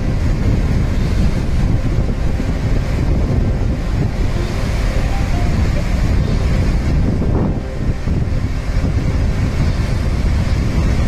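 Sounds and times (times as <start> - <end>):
water rushing through dam spillway: 0.0 - 11.0
wind buffeting microphone: 0.0 - 11.0.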